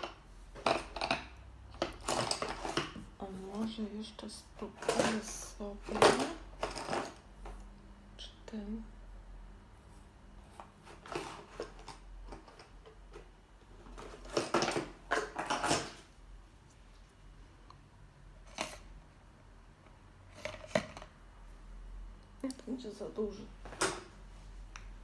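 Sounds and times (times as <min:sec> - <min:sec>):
cosmetics clicking and rattling: 0:00.0 - 0:03.1, 0:04.6 - 0:07.6, 0:10.9 - 0:16.0, 0:18.4 - 0:18.9.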